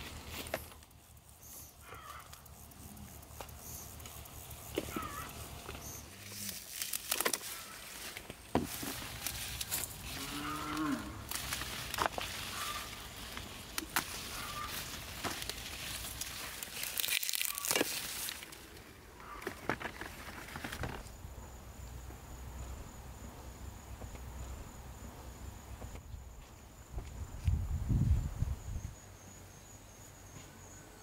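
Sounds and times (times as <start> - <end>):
high-pitched insect call: 0.0 - 19.5, 20.5 - 31.0
plants rustling and snapping: 3.4 - 21.2.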